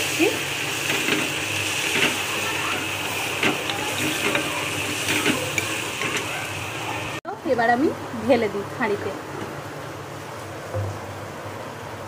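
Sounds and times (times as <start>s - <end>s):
meat sizzling in a pan: 0.0s - 7.2s
metal ladle scraping a pan: 3.4s - 6.3s.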